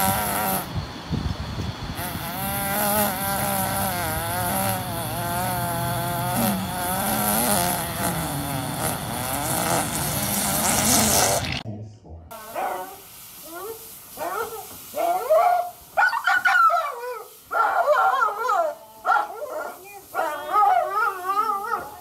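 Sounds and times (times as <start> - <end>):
dog howling with wavering pitch: 12.4 - 22.0.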